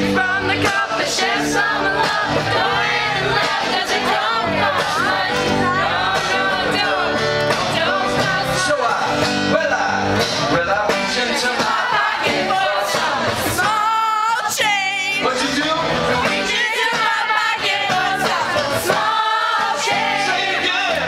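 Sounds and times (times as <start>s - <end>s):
man singing: 0.0s - 1.5s, 4.5s - 16.7s, 20.0s - 21.0s
guitar accompaniment: 0.0s - 21.0s.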